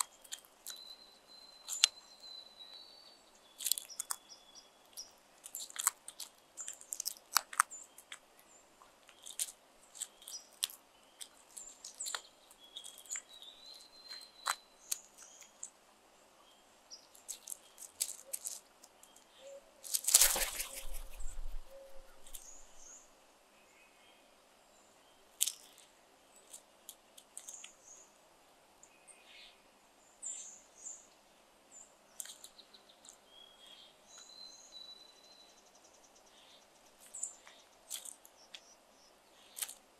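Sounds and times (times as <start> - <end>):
crows pecking on gravel: 0.0 - 1.0, 1.6 - 2.0, 3.4 - 15.8, 16.9 - 22.9, 25.3 - 27.8, 32.1 - 33.8, 36.3 - 39.9
small birds chirping: 0.0 - 28.2, 28.8 - 39.9.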